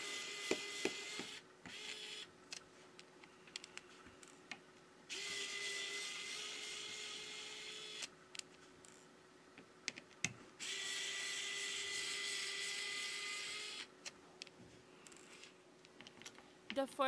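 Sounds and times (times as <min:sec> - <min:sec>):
electric screwdriver whining: 0:00.0 - 0:02.3, 0:05.1 - 0:08.1, 0:10.6 - 0:13.9.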